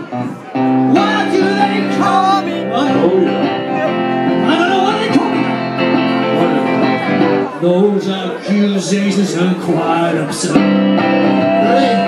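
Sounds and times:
electric guitar: 0.0 - 8.5, 9.4 - 12.0
person singing: 0.9 - 5.4.

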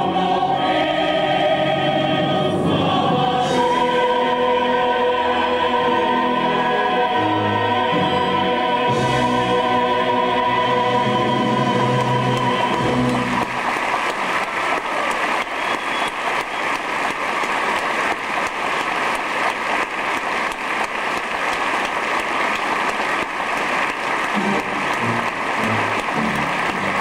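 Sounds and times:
orchestra playing: 0.0 - 14.2, 24.2 - 27.0
audience clapping: 11.0 - 27.0.

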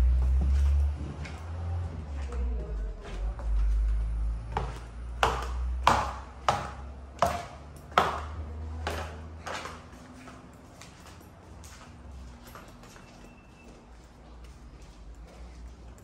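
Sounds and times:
footsteps on wooden stairs: 0.0 - 11.0.

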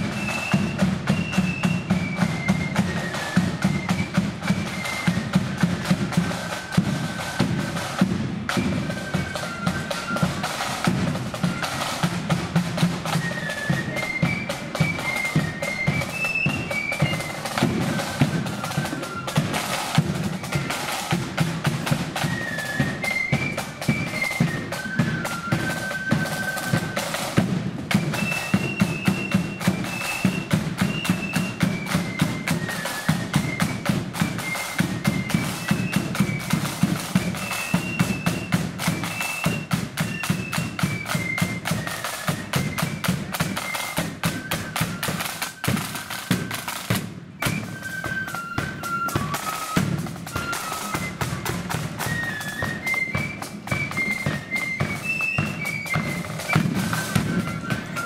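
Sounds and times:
flutes playing high melody: 0.0 - 58.0
side drum rolls: 0.0 - 58.0.

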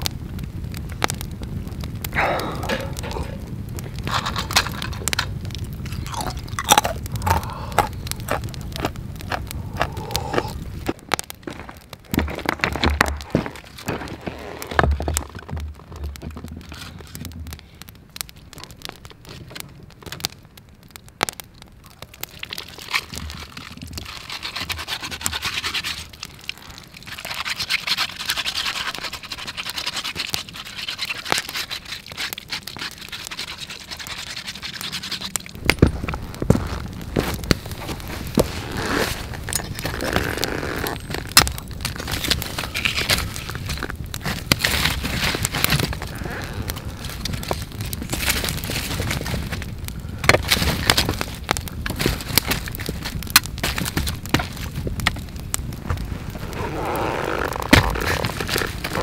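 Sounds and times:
small knocks and crackles: 0.0 - 59.0
stone being scrubbed: 23.6 - 26.2, 27.1 - 35.6.

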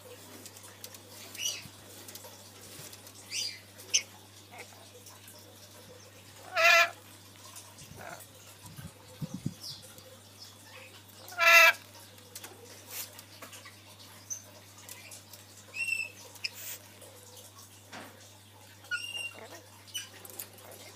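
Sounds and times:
parrot calling: 6.4 - 7.0, 7.9 - 8.3, 10.7 - 11.8, 18.9 - 20.9.

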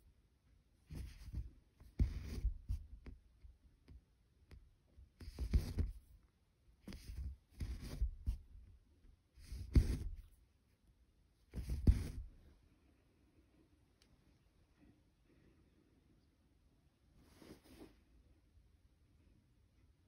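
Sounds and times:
needle and thread scratchy pulls: 6.9 - 8.4, 11.5 - 12.4.

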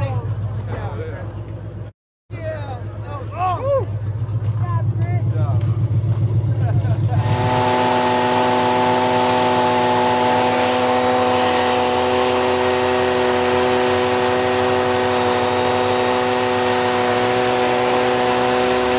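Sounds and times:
leaf blower running: 6.6 - 18.9.

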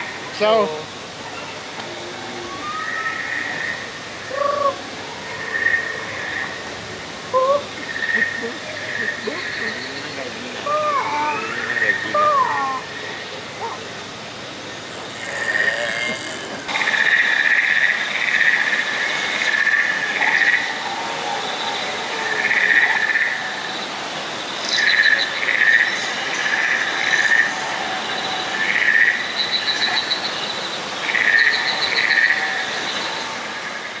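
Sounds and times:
waterfall hiss: 0.0 - 34.0
chirping creature calls: 10.6 - 13.9, 15.1 - 17.8
high insect-like drone: 14.6 - 20.9.

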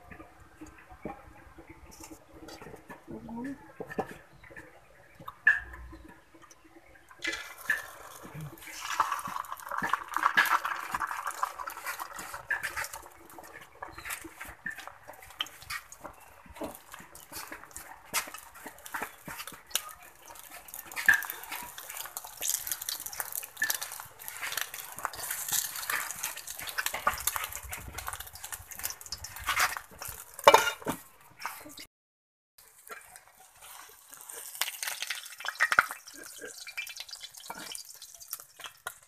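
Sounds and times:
egg sizzling in oil: 7.1 - 31.0, 32.6 - 39.0
metal spatula scraping pan: 29.4 - 31.0.

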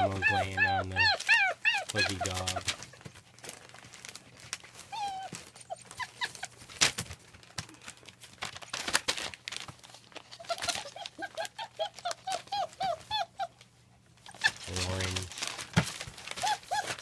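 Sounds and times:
puppies whimpering: 0.0 - 2.9, 4.9 - 6.6, 10.4 - 13.6, 14.3 - 15.2, 16.3 - 17.0.

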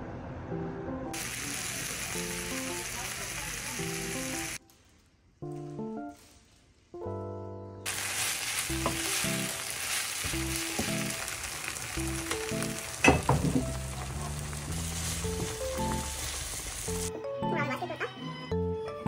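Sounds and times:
rice sizzling in a frying pan: 1.2 - 4.7, 7.9 - 17.1
spatula knocking on pan: 13.0 - 13.8.

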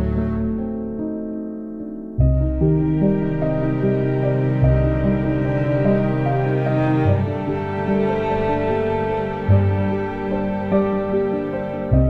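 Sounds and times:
background music with held notes: 0.0 - 12.0.

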